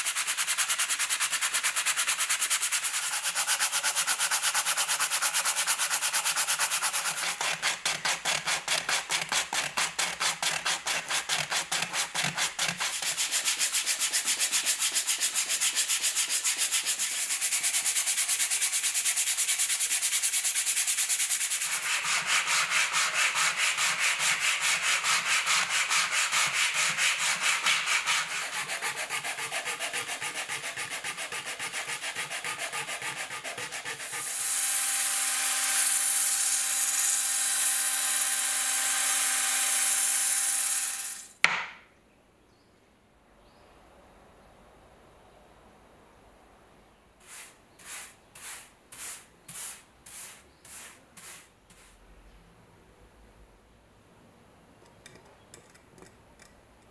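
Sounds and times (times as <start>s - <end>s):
sandpaper rubbing on wood: 0.0s - 34.4s, 47.2s - 52.0s
power tool sanding drum: 0.0s - 41.3s.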